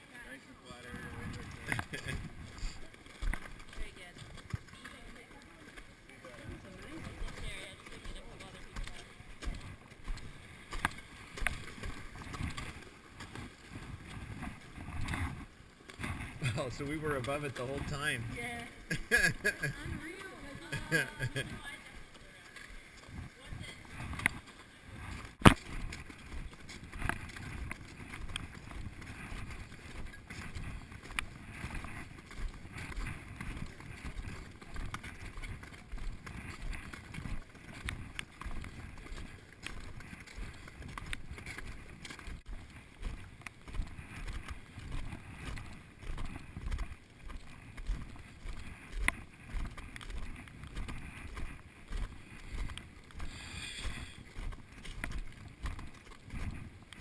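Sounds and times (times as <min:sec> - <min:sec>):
footsteps crunching on ice: 0:00.9 - 0:57.0.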